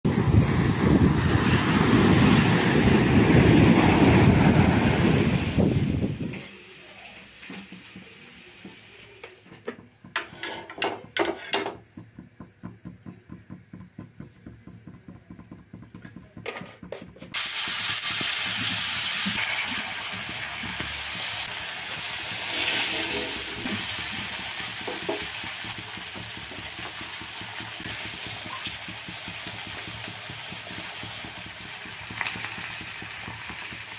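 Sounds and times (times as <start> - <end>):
waves washing on a beach: 0.1 - 5.8
fish frying in bubbling oil: 0.1 - 10.1, 17.3 - 33.9.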